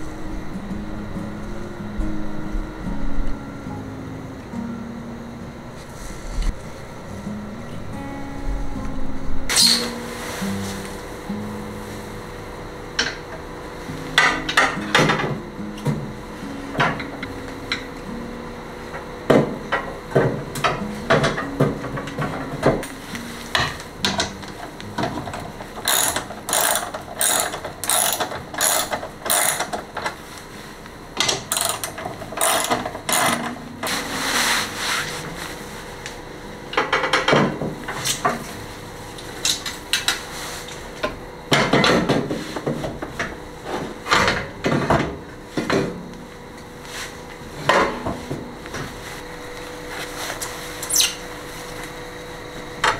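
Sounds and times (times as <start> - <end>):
ratchet wrench clicking: 25.8 - 29.7, 31.5 - 33.4.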